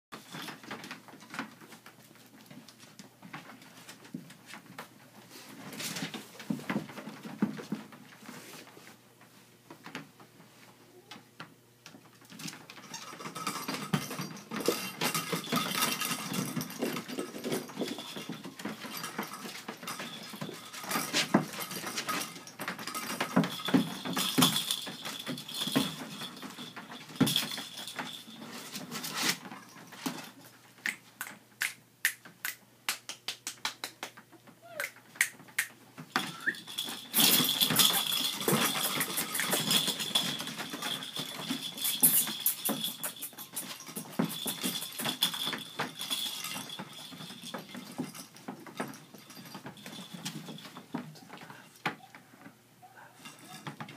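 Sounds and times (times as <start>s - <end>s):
puppies scuffling on blankets: 0.2s - 10.9s, 12.2s - 31.1s, 36.0s - 53.9s
puppy squeaks: 34.6s - 35.0s.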